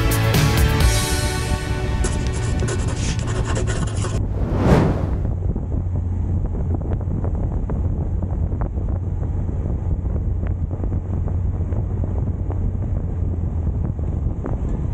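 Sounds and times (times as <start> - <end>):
wind buffeting microphone: 4.2 - 14.9.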